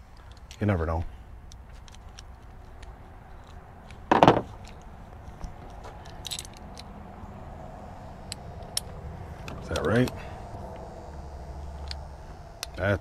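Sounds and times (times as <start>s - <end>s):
small metal clicks: 0.1s - 0.7s, 1.4s - 6.9s, 8.2s - 10.9s
loud knock: 4.1s - 4.5s
light metal jingling: 4.4s - 7.0s.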